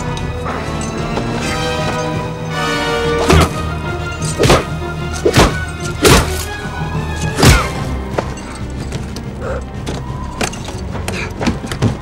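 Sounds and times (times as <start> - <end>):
dramatic orchestral music: 0.0 - 12.0.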